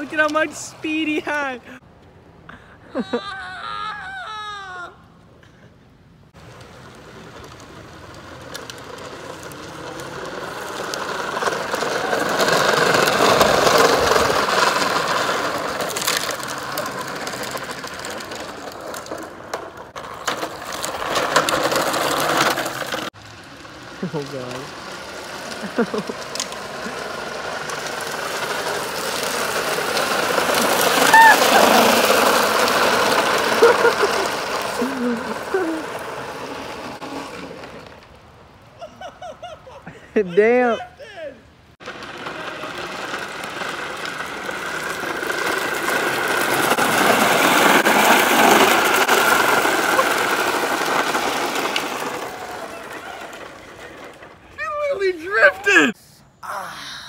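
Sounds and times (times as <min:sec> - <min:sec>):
plastic wheels rattling on asphalt: 0:00.0 - 0:01.8, 0:06.3 - 0:55.9
person shouting: 0:31.0 - 0:31.9.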